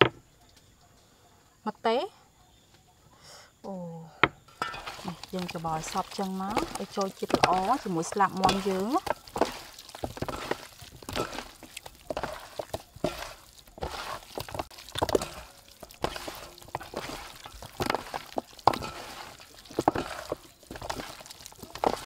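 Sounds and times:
wet squishing of raw meat: 4.7 - 22.0.

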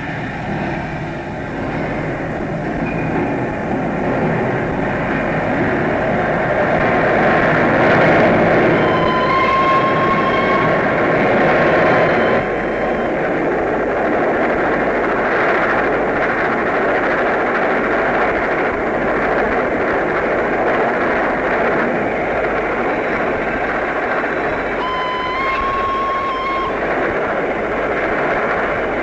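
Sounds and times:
steam train rumbling at speed: 0.0 - 29.0
train whistle: 7.4 - 15.8, 23.6 - 28.9.

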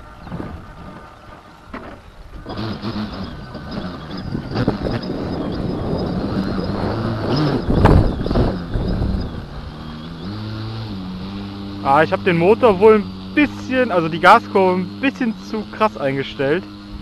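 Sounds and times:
model aircraft motor idling: 0.0 - 6.9, 11.1 - 17.0
wind noise on microphone: 2.3 - 11.9
person talking: 11.8 - 16.7.

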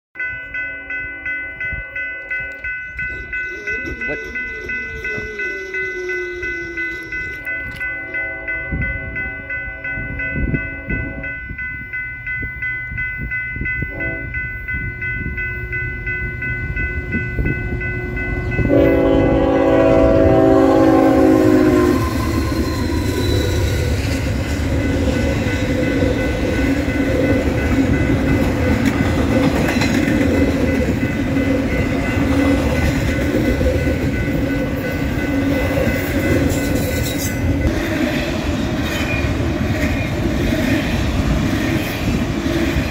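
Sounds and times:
locomotive horn blasts: 3.1 - 11.4, 13.8 - 14.4, 17.0 - 23.7
train wheels clacking over rail joints: 26.4 - 33.8.

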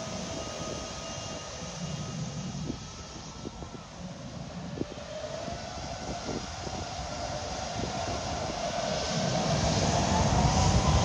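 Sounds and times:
jet engines whining: 0.0 - 11.0.

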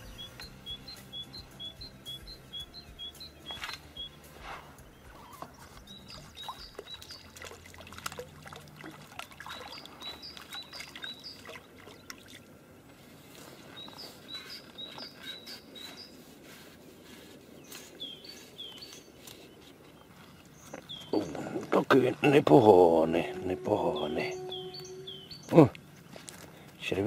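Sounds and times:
songbird chirping: 0.0 - 27.0
water splashing and dripping: 5.1 - 12.8.

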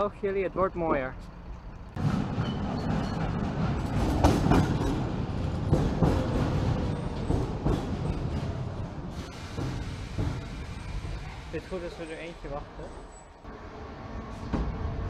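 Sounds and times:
train wheels clattering on track: 1.7 - 12.9.

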